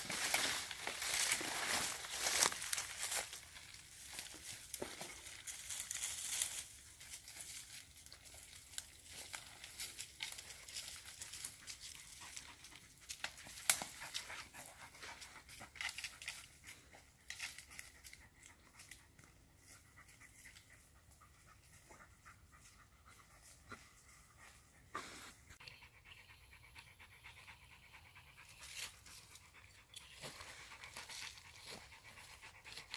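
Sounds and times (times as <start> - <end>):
footsteps in dry leaves: 0.0 - 16.2, 28.6 - 32.9
dog panting: 6.0 - 32.9.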